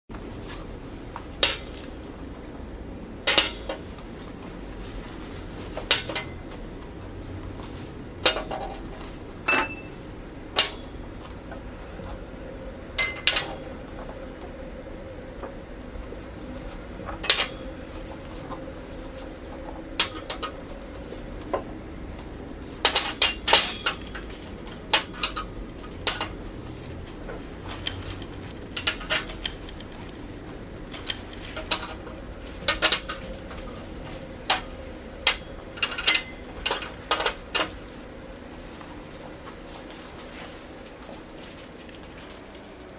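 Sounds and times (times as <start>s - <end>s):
glasses clinking on table: 9.5s - 10.0s.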